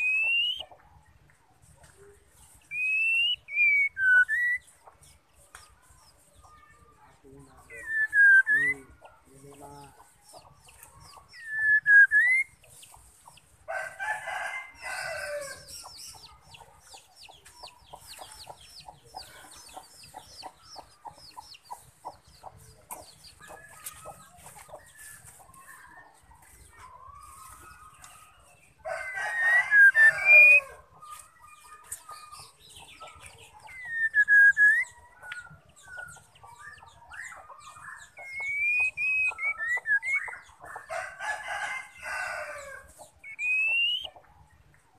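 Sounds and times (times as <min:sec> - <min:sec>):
bird whistling: 0:00.0 - 0:00.7, 0:02.7 - 0:04.6, 0:07.8 - 0:08.8, 0:11.4 - 0:12.6, 0:33.7 - 0:34.9, 0:38.2 - 0:40.4, 0:43.2 - 0:44.1
rooster crowing: 0:13.7 - 0:15.7, 0:28.8 - 0:30.8, 0:40.9 - 0:42.9
bird ticking chatter: 0:38.0 - 0:40.4.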